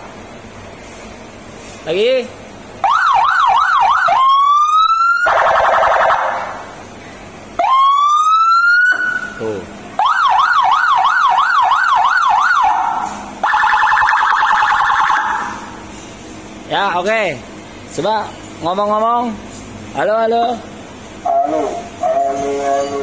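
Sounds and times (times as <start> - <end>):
electronic car siren: 2.8 - 6.6, 7.6 - 9.4, 10.0 - 15.6.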